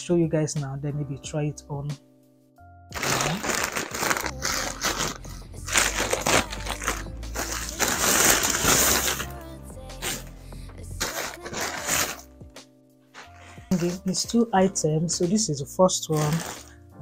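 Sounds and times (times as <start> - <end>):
soft background music: 0.0 - 17.0
plastic bags crinkling: 3.0 - 9.3, 11.0 - 12.2, 13.2 - 14.2, 16.1 - 16.8.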